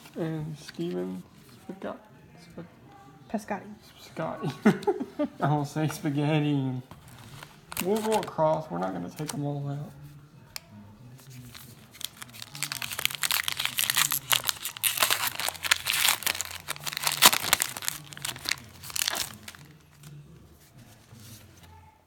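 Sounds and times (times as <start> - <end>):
wrapper being torn and crinkled: 7.1 - 8.5, 11.4 - 19.8.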